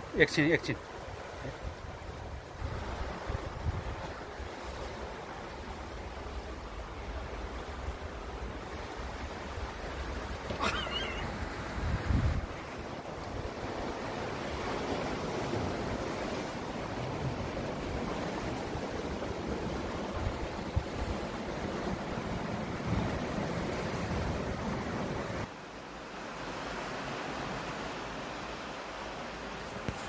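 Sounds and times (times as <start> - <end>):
surf washing against rocks: 0.0 - 30.0
wind buffeting microphone: 11.4 - 12.6.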